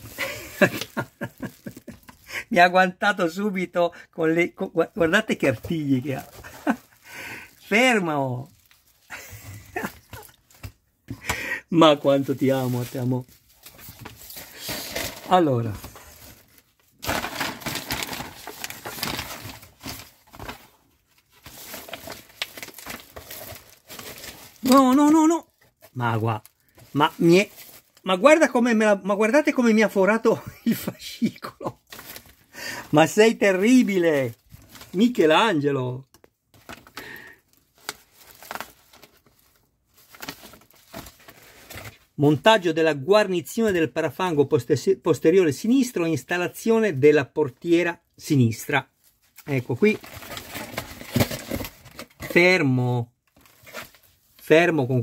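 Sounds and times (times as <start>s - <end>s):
magazine pages rustling: 0.0s - 2.2s, 4.5s - 28.3s, 31.8s - 35.5s, 36.2s - 42.4s, 49.0s - 52.6s, 53.3s - 54.6s.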